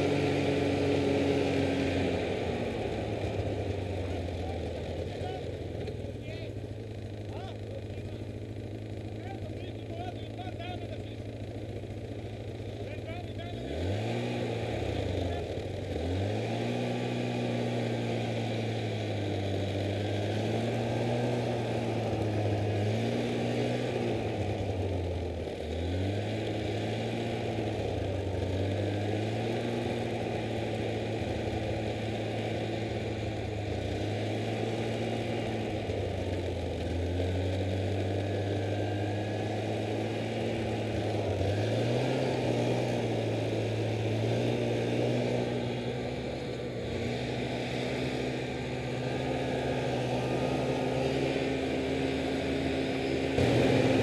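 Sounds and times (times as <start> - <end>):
snowmobile engine revving: 0.0 - 54.0.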